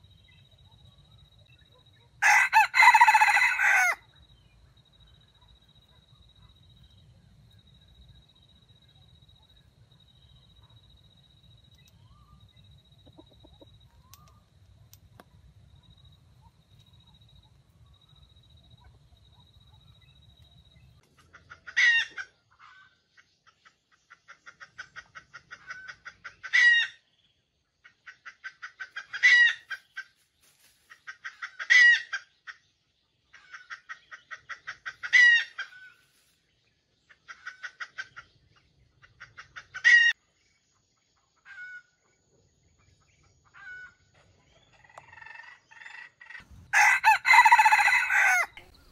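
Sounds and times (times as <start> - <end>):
rooster crowing: 2.2 - 4.1, 46.6 - 48.8.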